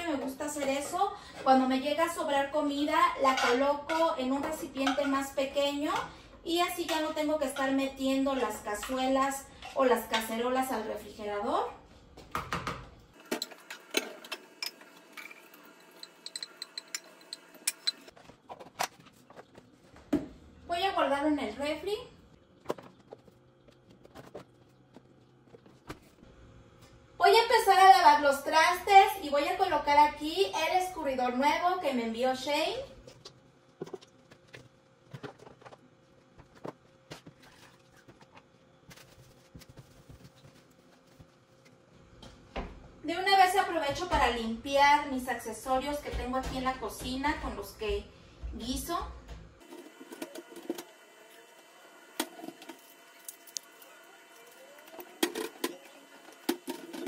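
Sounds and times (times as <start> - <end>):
kitchenware clicks and taps: 3.2 - 6.1, 16.0 - 19.4
kitchen items knocking on counter: 12.3 - 12.9.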